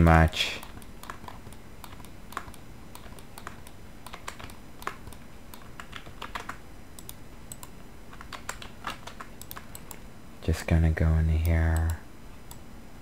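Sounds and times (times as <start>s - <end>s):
faint low hum: 0.0s - 13.0s
keyboard and mouse clicking: 0.6s - 10.0s.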